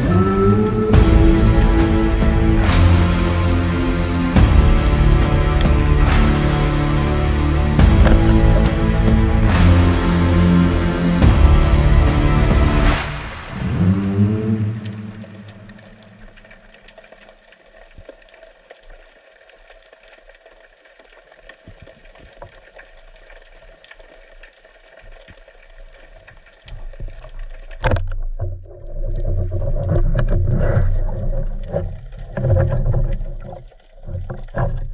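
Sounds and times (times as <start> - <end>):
water churning and thrashing: 0.0 - 34.9
underwater crackling and clicking: 7.8 - 8.8, 14.8 - 34.9.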